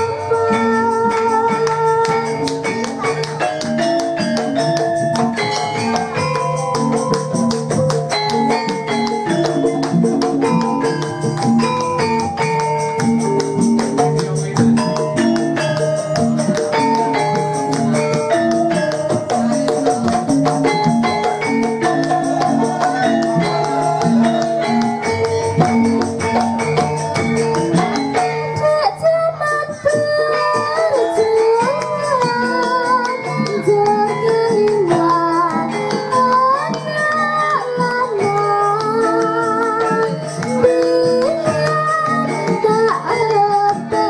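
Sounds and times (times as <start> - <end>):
hand drum strokes: 0.0 - 28.6
metallophones ringing melody: 0.0 - 44.0.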